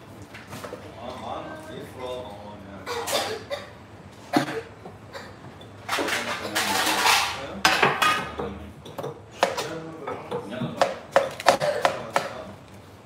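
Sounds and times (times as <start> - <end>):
dishes and utensils clattering: 4.3 - 12.5.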